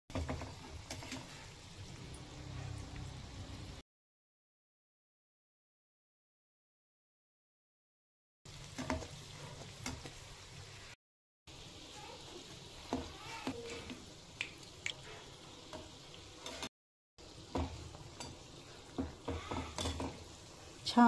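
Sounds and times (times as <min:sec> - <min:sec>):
food sizzling in hot oil: 0:00.1 - 0:03.8, 0:08.5 - 0:21.0.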